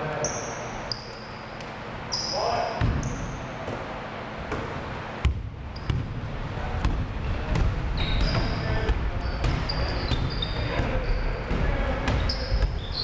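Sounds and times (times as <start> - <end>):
sneakers squeaking: 0.0 - 13.0.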